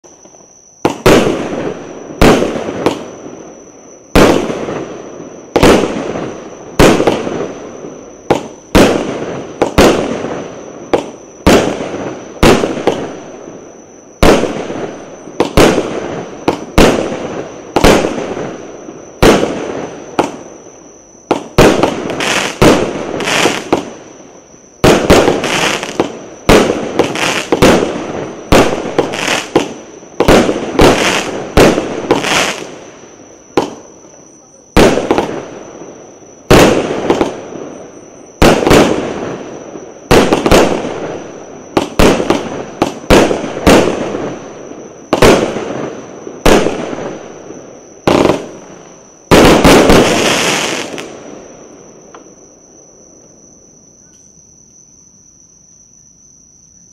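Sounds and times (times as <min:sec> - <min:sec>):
firework cake bangs: 0:24.8 - 0:32.6.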